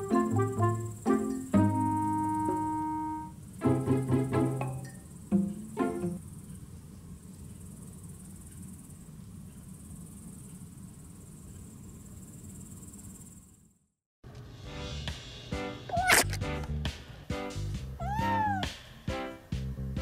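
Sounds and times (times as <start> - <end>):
night insects chirring: 0.0 - 13.9.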